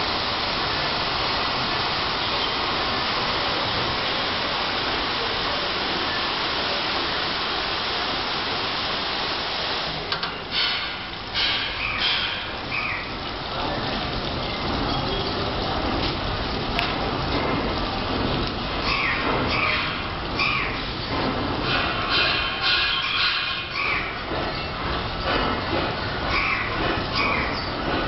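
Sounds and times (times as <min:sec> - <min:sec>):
high-pressure water jets spraying: 0:00.0 - 0:28.0.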